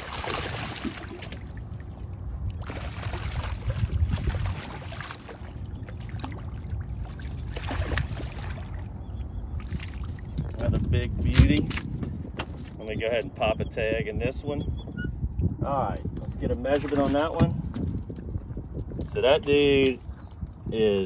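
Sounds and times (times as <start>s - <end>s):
fish thrashing and splashing in water: 0.0s - 8.9s, 9.6s - 10.6s
steady low rumble: 0.0s - 14.6s.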